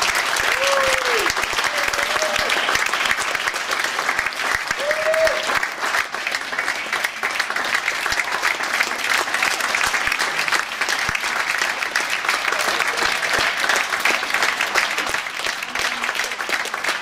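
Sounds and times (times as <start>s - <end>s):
audience applauding: 0.0s - 17.0s.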